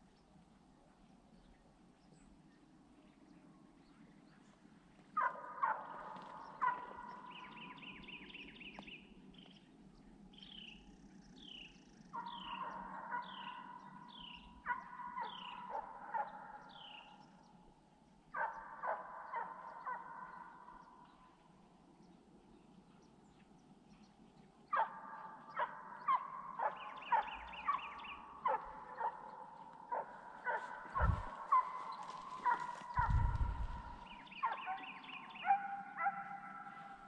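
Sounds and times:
hounds baying: 5.2s - 7.6s, 12.2s - 14.0s, 14.7s - 17.0s, 18.4s - 20.9s, 24.7s - 37.0s.

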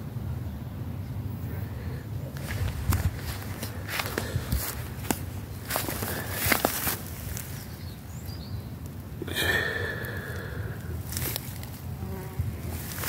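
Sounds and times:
steady low rumble: 1.2s - 13.0s
flying insect buzzing: 11.2s - 13.0s.

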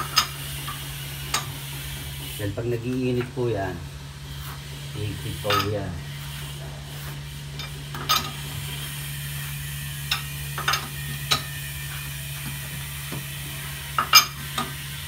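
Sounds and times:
wheel wrench clinking on lug nuts: 0.0s - 1.5s, 5.4s - 5.8s, 10.1s - 11.5s, 14.0s - 14.7s
steady low hum: 0.0s - 15.0s.

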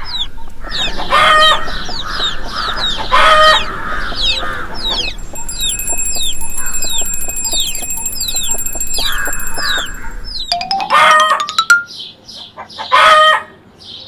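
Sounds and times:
high steady ringing music tone: 5.0s - 12.1s.

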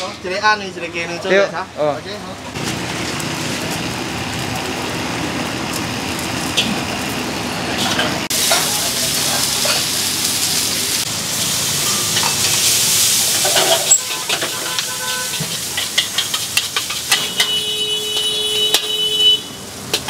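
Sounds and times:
food sizzling in a wok: 2.5s - 20.0s
metal spatula scraping a wok: 11.8s - 19.0s.

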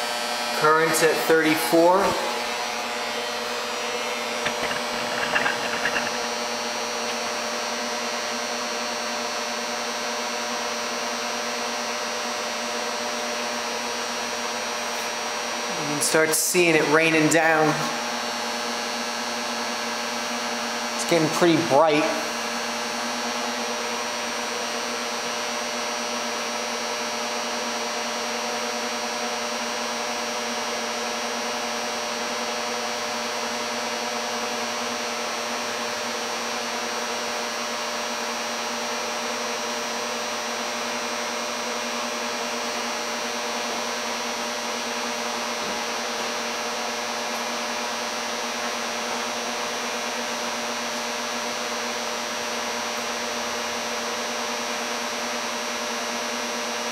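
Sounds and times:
cooling fan running: 0.0s - 13.8s
induction heater whirring hum: 0.0s - 56.9s.

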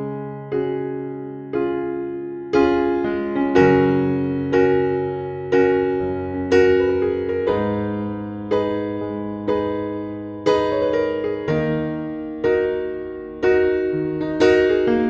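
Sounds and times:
slow piano chords: 0.0s - 15.0s.

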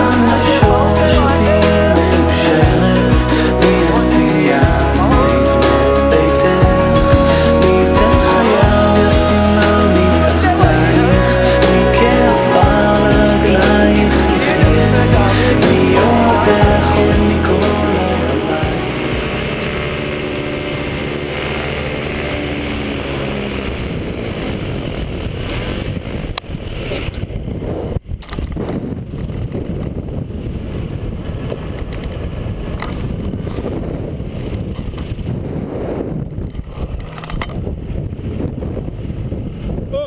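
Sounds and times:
background music: 0.0s - 23.5s
paramotor engine: 0.0s - 26.2s
wind rushing over microphone: 0.0s - 40.0s.

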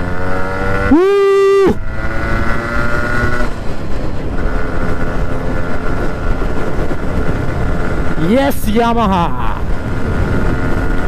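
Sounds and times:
motorcycle engine running: 0.0s - 11.0s
wind and road noise: 0.0s - 11.0s
loud held tone: 0.8s - 1.8s.

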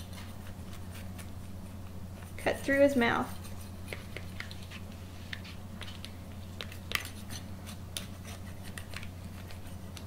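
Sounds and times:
knife scraping on paper plate: 6.8s - 9.8s.

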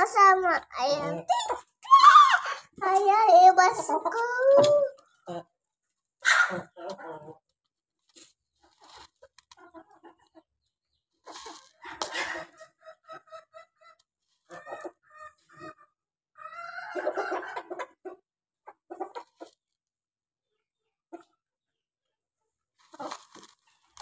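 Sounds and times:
chickens clucking: 6.2s - 7.4s, 8.6s - 19.6s, 20.4s - 21.5s, 22.8s - 24.0s.

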